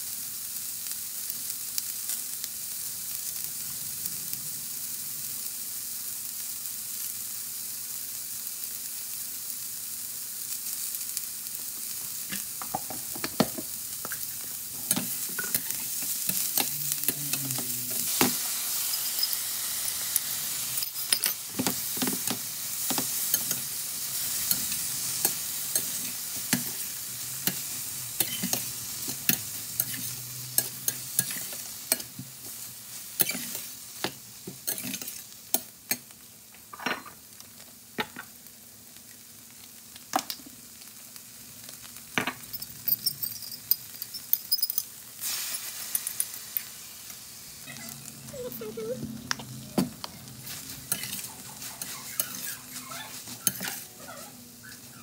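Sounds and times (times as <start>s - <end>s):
food sizzling in a skillet: 0.0s - 55.0s
metal spatula scraping a pan: 22.8s - 32.1s, 33.1s - 33.7s, 50.4s - 54.0s.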